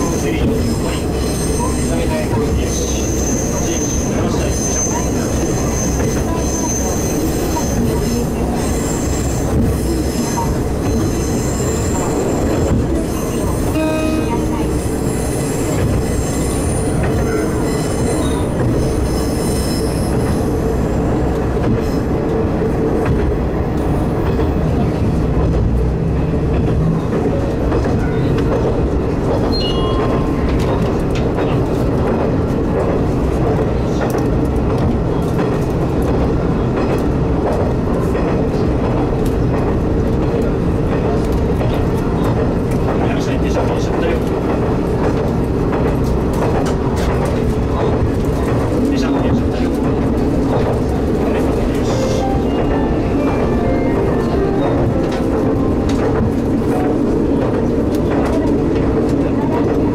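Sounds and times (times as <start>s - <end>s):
high wheel squeal: 0.0s - 20.6s
diesel railcar engine: 0.0s - 59.9s.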